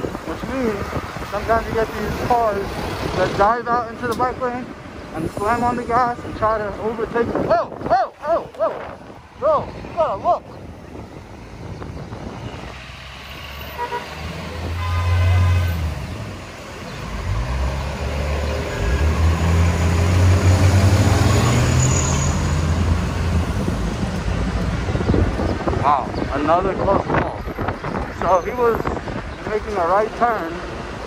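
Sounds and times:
vehicle horn: 13.7s - 16.0s.

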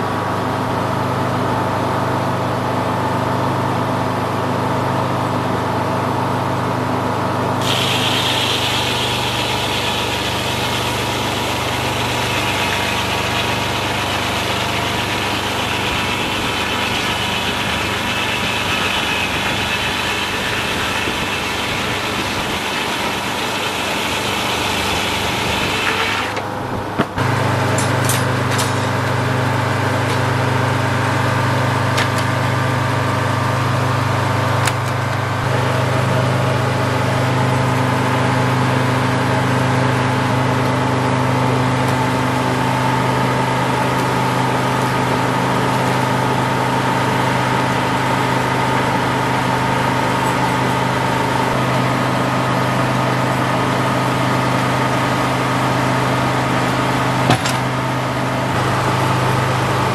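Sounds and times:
diesel engine running under load: 0.0s - 59.9s
sawmill blade cutting log: 7.6s - 33.1s, 41.1s - 59.9s
sharp knocks: 57.3s - 57.7s.

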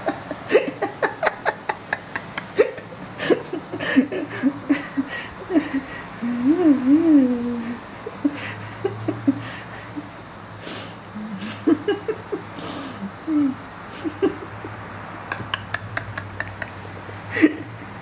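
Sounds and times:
soft vocal sounds: 5.9s - 7.9s, 10.6s - 11.7s.

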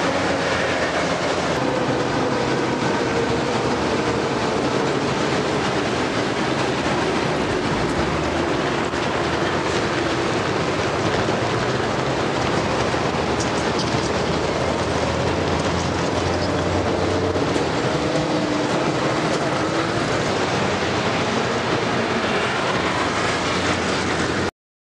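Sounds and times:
train rumbling on track: 0.0s - 24.5s
wheel squeal: 15.6s - 18.4s.

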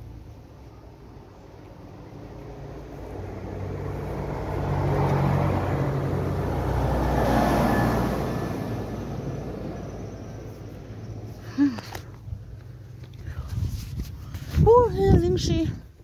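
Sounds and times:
vehicle driving past: 1.3s - 11.4s.

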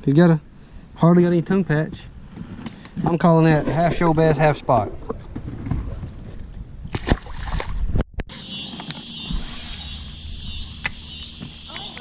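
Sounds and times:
water splashing: 6.9s - 7.9s
insect chorus buzzing: 8.3s - 12.0s.

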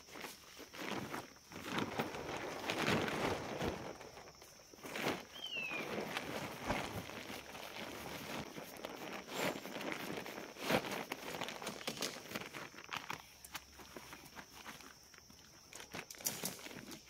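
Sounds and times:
footsteps: 0.0s - 17.0s
rustling of gear: 0.0s - 17.0s.

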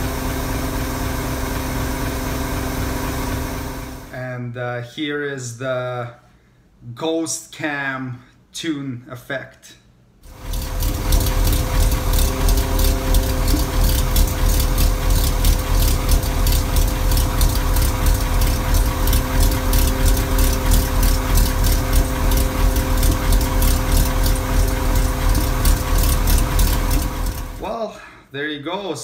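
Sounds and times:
fuel pump whine: 0.0s - 4.1s, 10.2s - 27.7s
choppy engine exhaust idling: 10.3s - 27.7s.

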